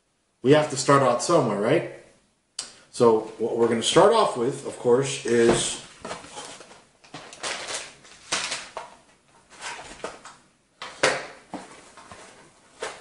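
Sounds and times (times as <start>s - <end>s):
cardboard and plastic rustling: 5.3s - 13.0s.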